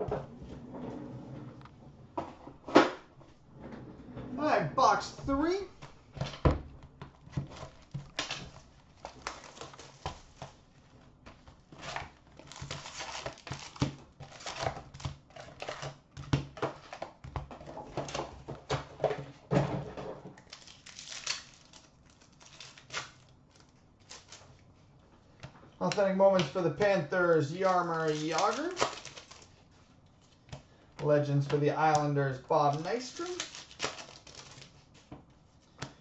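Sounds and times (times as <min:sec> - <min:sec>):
card packs crinkling and rustling: 0:04.8 - 0:19.5, 0:20.3 - 0:24.8, 0:25.7 - 0:36.0
wrapper tearing: 0:07.5 - 0:10.4, 0:11.8 - 0:16.0, 0:20.4 - 0:24.6, 0:27.4 - 0:29.5, 0:31.9 - 0:34.8.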